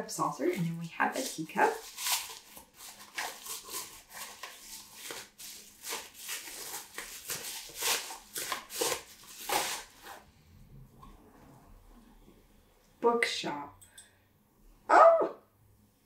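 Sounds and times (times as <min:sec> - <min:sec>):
bubble wrap crinkling: 0:00.4 - 0:10.2.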